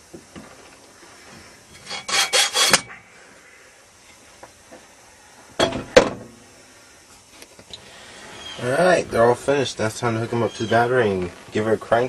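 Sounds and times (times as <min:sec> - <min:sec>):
electrical tape ripping off roll: 0:08.6 - 0:12.0.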